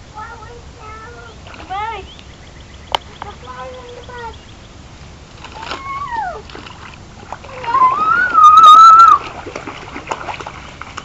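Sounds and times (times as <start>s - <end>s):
feet splashing through water: 5.0s - 11.0s
child squealing: 5.6s - 6.5s, 7.5s - 9.2s.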